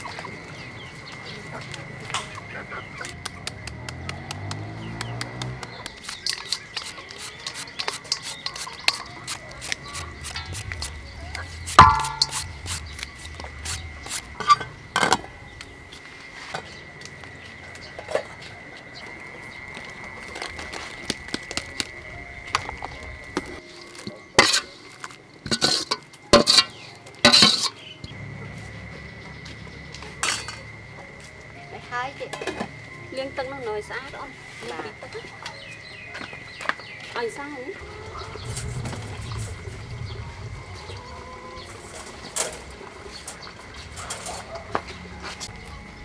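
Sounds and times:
scattered clicks: 3.0 - 9.1
knife shredding mango: 5.9 - 13.1
sharp metal clanks: 11.6 - 12.9, 25.5 - 27.9
metal ladle knocking on pot: 11.8 - 12.5.

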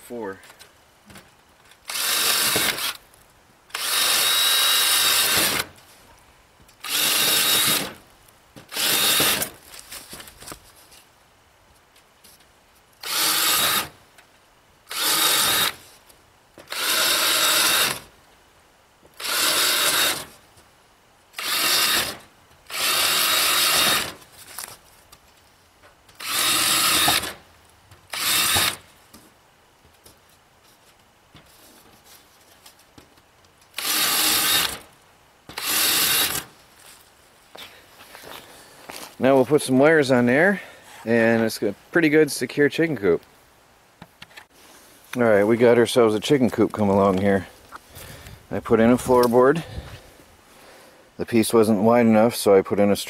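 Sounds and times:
cordless drill whining: 1.8 - 3.0, 3.7 - 5.7, 6.8 - 8.0, 8.7 - 9.5, 13.0 - 14.0, 14.9 - 15.8, 16.7 - 18.1, 19.2 - 20.4, 21.4 - 24.2, 26.2 - 27.4, 28.1 - 28.8, 33.8 - 34.8, 35.5 - 36.5.

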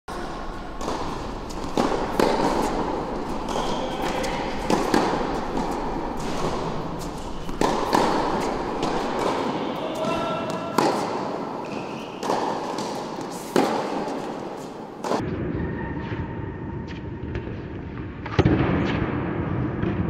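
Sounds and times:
tennis balls struck by racket: 0.1 - 15.2.

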